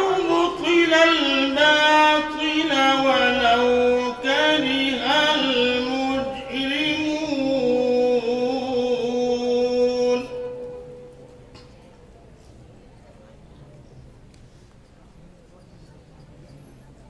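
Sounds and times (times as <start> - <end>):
man reciting melodically: 0.0 - 11.3.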